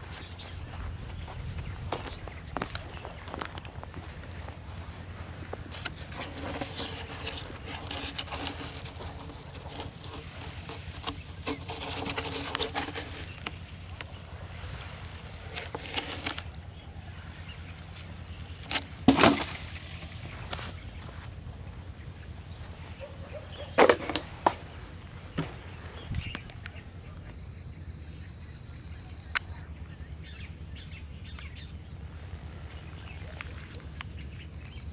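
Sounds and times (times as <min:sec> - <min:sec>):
foam block rubbing and crunching: 0:01.8 - 0:17.3, 0:17.9 - 0:21.2.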